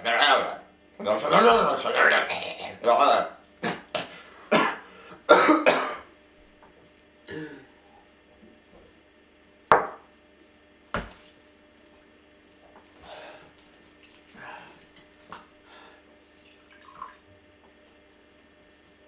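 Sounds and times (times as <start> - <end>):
man coughing harshly: 3.6 - 6.1, 7.3 - 7.7.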